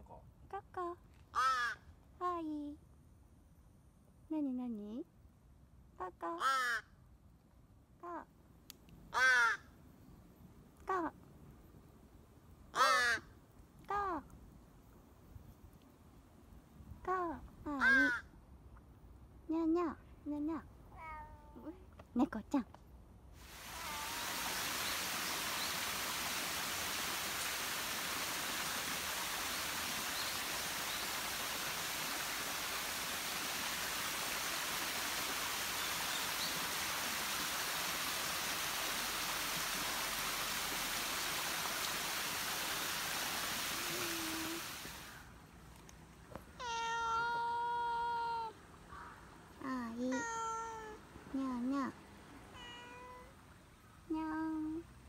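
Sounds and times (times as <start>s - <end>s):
cat meowing: 20.9s - 21.7s, 23.7s - 24.4s, 46.6s - 48.5s, 50.1s - 51.0s, 52.6s - 53.3s
steady rushing hiss: 23.3s - 46.6s.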